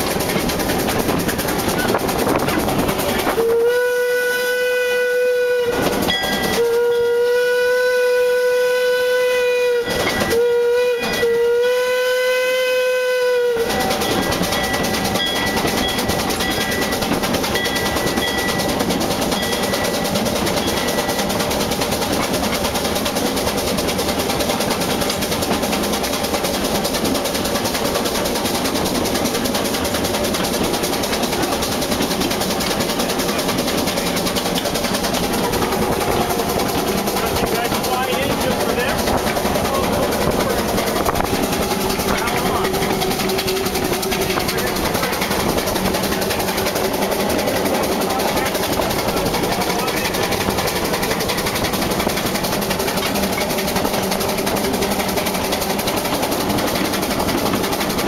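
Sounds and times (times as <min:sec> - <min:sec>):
train rolling and rail clatter: 0:00.0 - 0:58.0
steam whistle blasts: 0:03.3 - 0:14.2.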